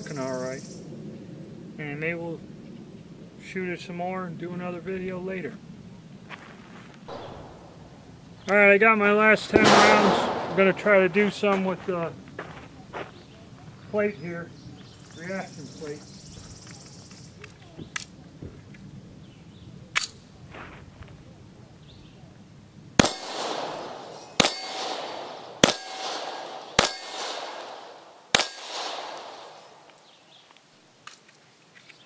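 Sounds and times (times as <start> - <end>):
pistol shots: 7.1 - 8.1, 9.4 - 11.8, 23.0 - 29.9
steel plate ringing when hit: 24.4 - 25.0, 25.6 - 27.4.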